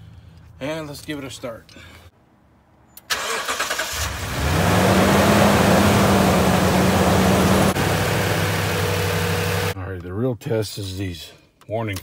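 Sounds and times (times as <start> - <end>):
engine cranking on starter: 3.1 - 5.9.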